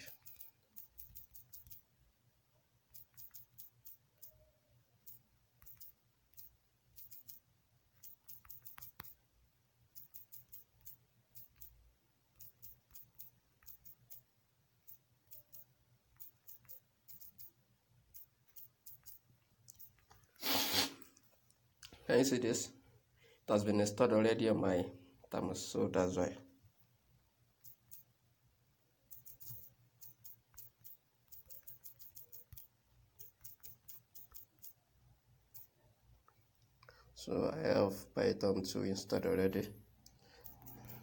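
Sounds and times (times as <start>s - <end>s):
phone keyboard typing clicks: 0.0s - 1.8s, 2.9s - 7.4s, 8.0s - 9.2s, 9.9s - 14.3s, 14.9s - 20.2s, 27.6s - 28.1s, 29.1s - 34.8s, 40.3s - 41.0s.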